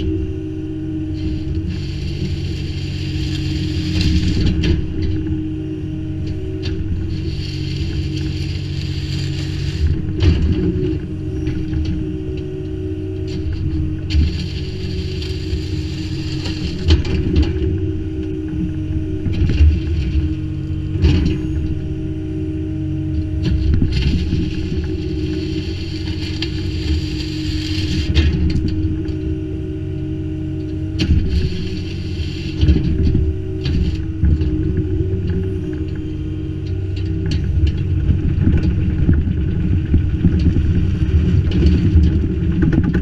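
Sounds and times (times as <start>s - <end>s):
excavator engine and hydraulics: 0.0s - 43.0s
bucket scraping through stone: 1.2s - 4.8s, 7.0s - 10.8s, 13.3s - 17.3s, 23.8s - 28.4s, 31.1s - 34.2s.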